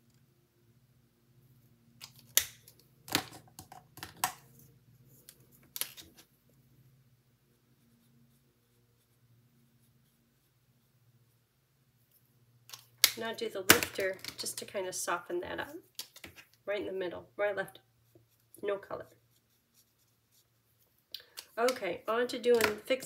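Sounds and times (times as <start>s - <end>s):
marker caps clicking: 2.0s - 4.4s, 12.7s - 14.6s, 16.0s - 16.5s, 22.5s - 23.0s.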